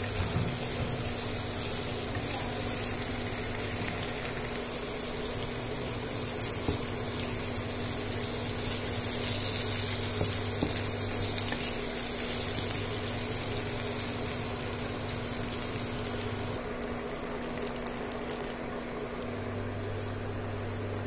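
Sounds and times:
fish sizzling in a pan: 0.0 - 18.7.

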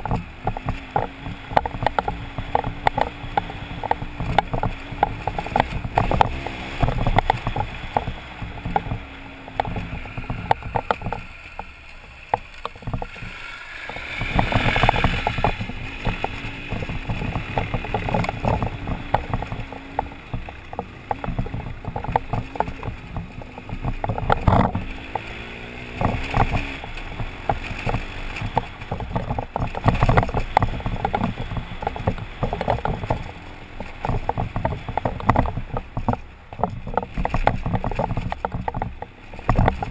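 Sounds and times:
knocks and rattles over stones: 0.0 - 39.9
motorcycle engine running: 0.0 - 39.9
wind buffeting on microphone: 12.8 - 39.9.

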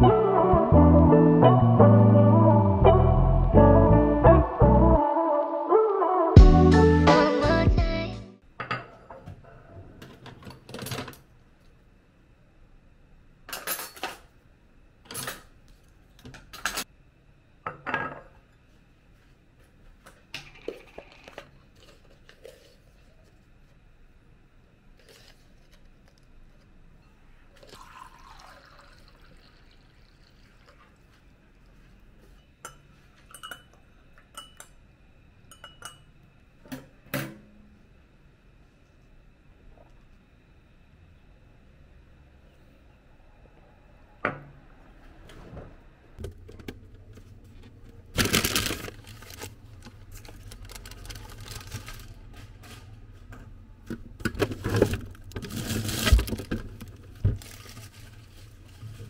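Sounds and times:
water poured into a glass: 27.5 - 31.0
dishes and glass clinking: 32.4 - 34.8, 35.5 - 36.1.

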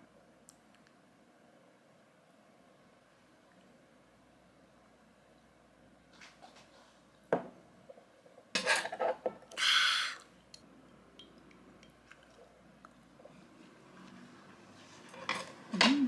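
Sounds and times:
glass set down on wooden table: 7.3 - 7.6
person exhaling: 9.6 - 10.3.

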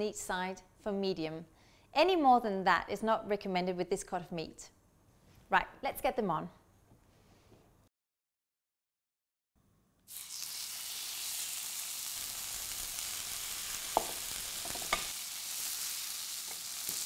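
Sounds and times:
steaks sizzling in frying pan: 10.1 - 17.0
tongs clinking against pan: 14.0 - 15.1.

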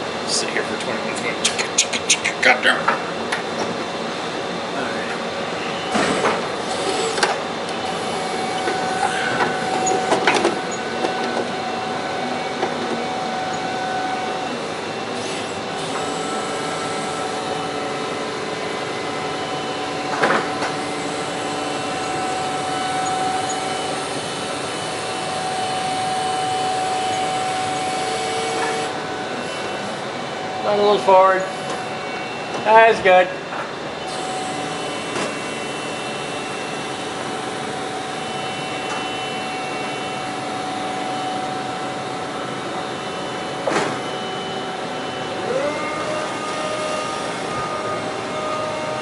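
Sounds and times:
forklift lift whine: 0.0 - 49.0.

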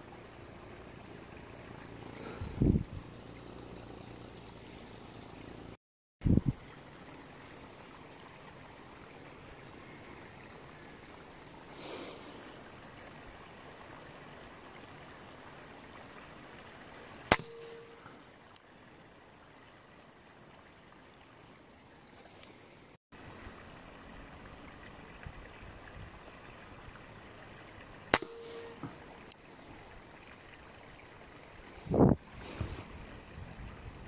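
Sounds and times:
stream trickling: 0.0 - 34.0
air rifle shot: 17.3 - 17.9.

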